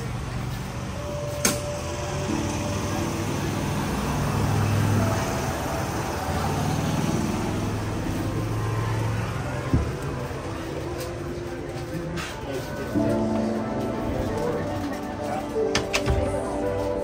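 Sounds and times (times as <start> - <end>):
murmur of voices: 7.5 - 17.0.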